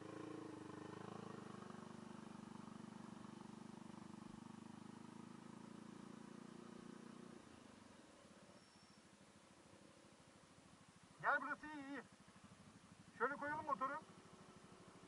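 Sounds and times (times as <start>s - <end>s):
scooter engine running: 0.0s - 7.7s, 12.1s - 15.0s.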